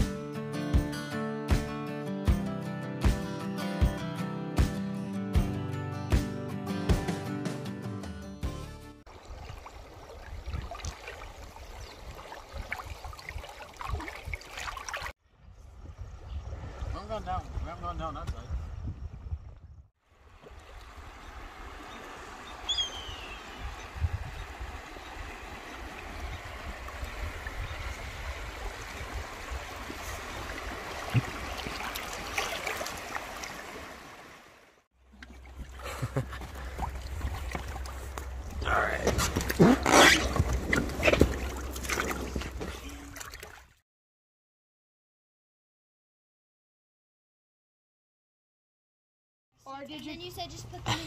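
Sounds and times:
small splashes: 9.1 - 15.1, 24.9 - 34.4, 35.0 - 43.8
water trickling: 9.1 - 15.1, 24.2 - 34.2, 35.0 - 38.8.

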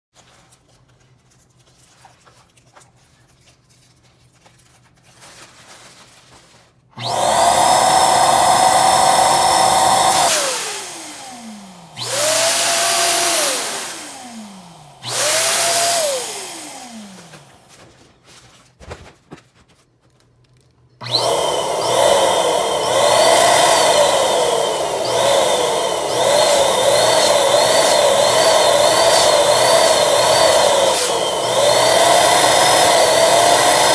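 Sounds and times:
electric balloon pump running: 7.0 - 17.8, 21.0 - 33.9.

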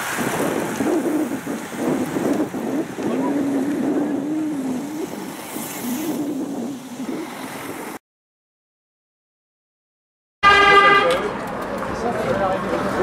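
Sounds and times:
steady wind noise: 0.0 - 8.0.

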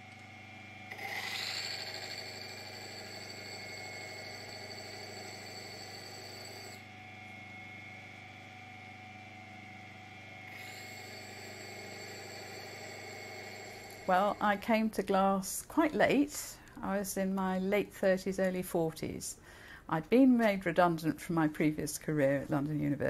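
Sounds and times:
engraving lathe humming: 0.9 - 6.8, 10.5 - 14.6
glass cutting whine: 0.9 - 6.9, 10.4 - 14.6.

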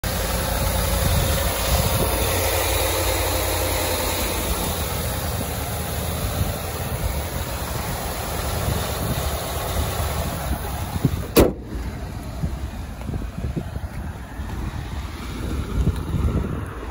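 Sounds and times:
pickup engine idling: 0.0 - 14.8
sharp knock: 11.4 - 11.7.

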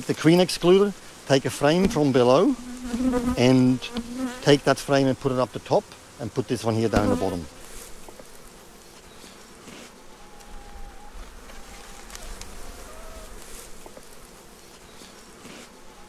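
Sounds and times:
bees buzzing: 0.2 - 16.0.

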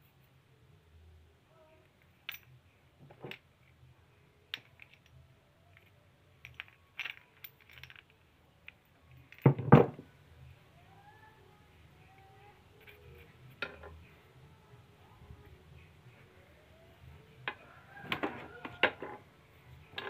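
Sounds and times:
steel parts clinking: 1.8 - 3.8, 4.5 - 10.0, 12.7 - 14.2, 19.8 - 20.0.

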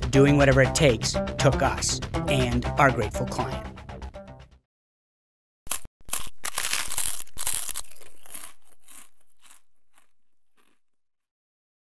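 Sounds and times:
crunchy bite and chewing: 5.7 - 11.0.

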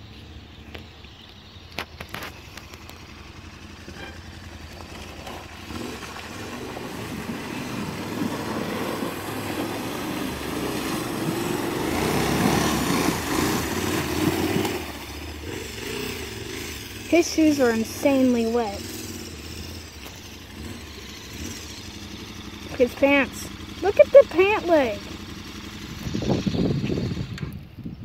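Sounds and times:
motorcycle engine running: 0.0 - 28.0
tyres splashing water: 1.9 - 15.4.

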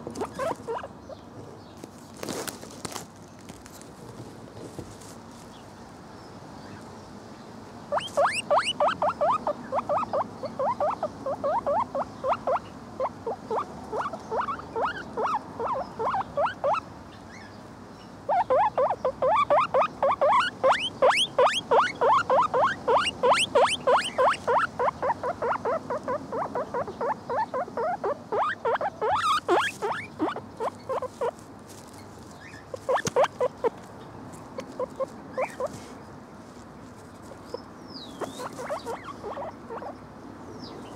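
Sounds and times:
guinea pig squeaking: 0.0 - 0.9, 7.9 - 16.8, 18.3 - 31.4, 32.4 - 33.8, 34.6 - 35.8, 37.5 - 40.0.

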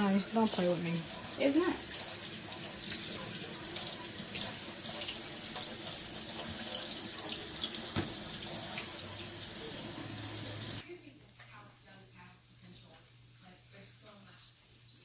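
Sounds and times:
faucet running into steel sink: 0.0 - 10.8.

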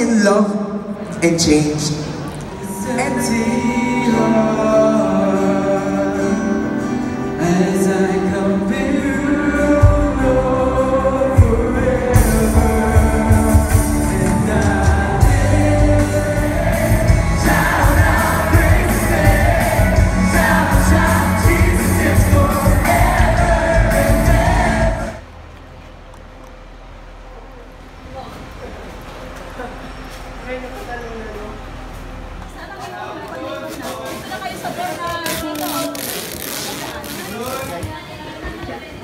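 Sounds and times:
person singing: 2.6 - 25.2
bass: 7.9 - 32.7
drums: 8.9 - 25.2.

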